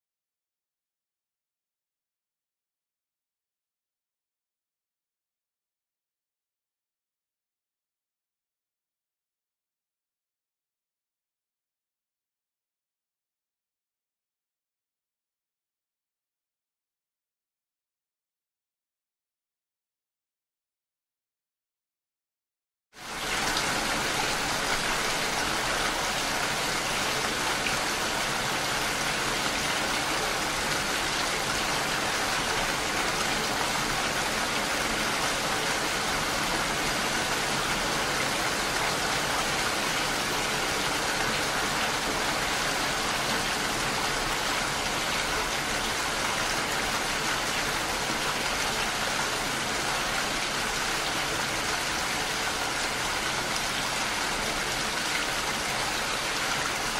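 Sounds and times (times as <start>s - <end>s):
steady rain falling: 23.0s - 56.9s.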